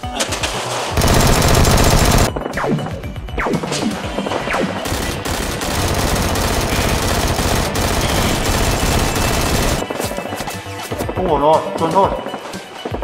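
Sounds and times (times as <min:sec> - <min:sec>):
automatic gunfire: 0:01.0 - 0:02.3, 0:04.8 - 0:09.9.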